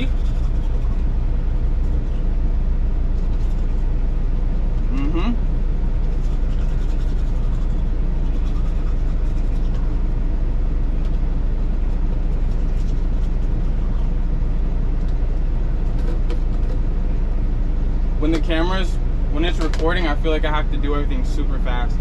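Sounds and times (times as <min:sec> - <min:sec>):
toothbrush scratching: 0:00.0 - 0:01.2, 0:03.2 - 0:03.9, 0:06.0 - 0:10.0, 0:11.8 - 0:14.1
diesel engine idling: 0:00.0 - 0:22.0.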